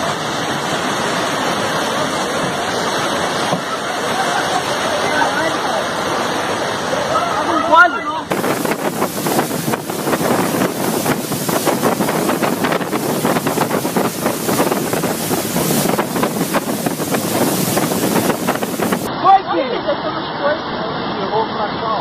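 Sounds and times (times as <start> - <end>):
rushing floodwater torrent: 0.0 - 22.0
wind buffeting microphone: 8.3 - 19.1.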